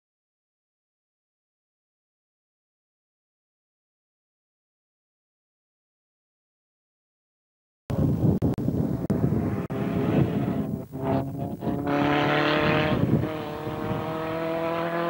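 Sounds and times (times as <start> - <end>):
race car engine at high revs: 9.0 - 15.0.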